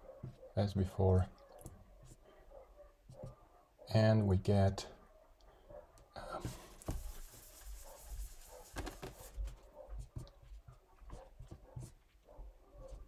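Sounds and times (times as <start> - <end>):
marker writing on whiteboard: 3.1 - 3.4, 6.4 - 12.0
whiteboard being wiped: 6.4 - 10.3.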